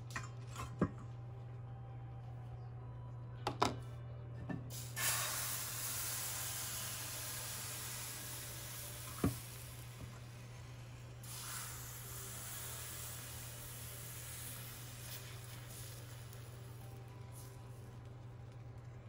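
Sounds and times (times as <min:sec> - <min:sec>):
batter sizzling in a frying pan: 0:04.7 - 0:19.0.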